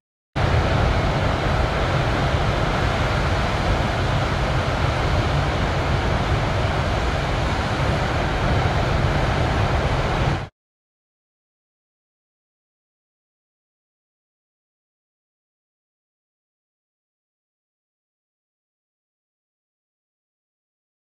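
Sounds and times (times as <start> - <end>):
ocean waves breaking: 0.4 - 10.5
wind noise on microphone: 0.4 - 10.5.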